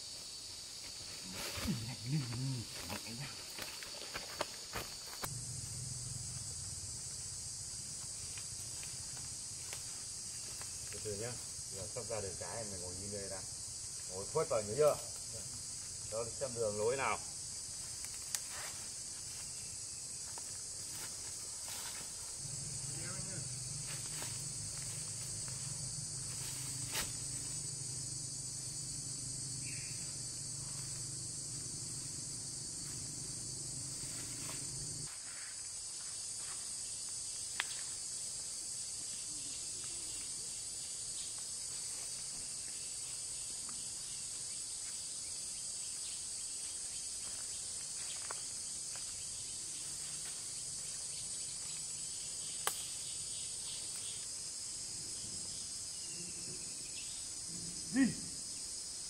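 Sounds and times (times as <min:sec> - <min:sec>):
forest insects droning: 0:00.0 - 0:59.0
low hum: 0:05.3 - 0:07.4.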